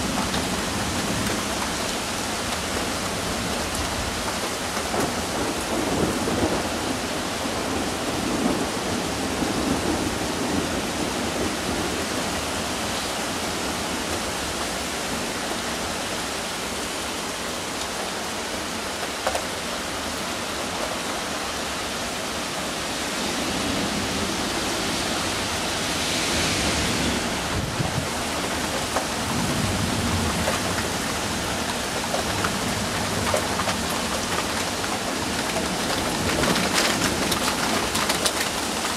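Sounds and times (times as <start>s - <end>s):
heavy rain: 0.0s - 38.9s
rolling thunder: 23.1s - 31.5s.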